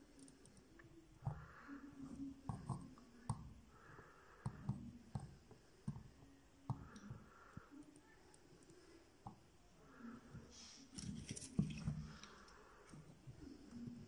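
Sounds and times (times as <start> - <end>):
soft hisses: 9.8 - 14.0.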